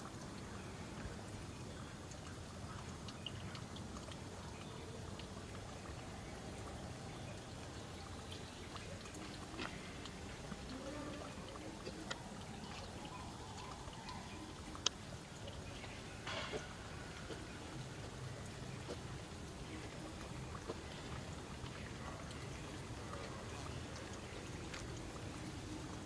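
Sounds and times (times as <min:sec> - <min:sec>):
faint clicks and ticks: 0:00.0 - 0:26.0
trickling water-like noise: 0:00.0 - 0:26.0.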